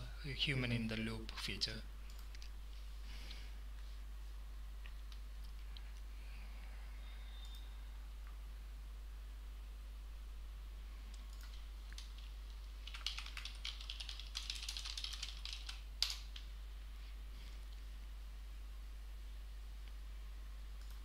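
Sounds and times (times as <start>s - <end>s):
typing on computer keyboard: 11.1s - 16.5s.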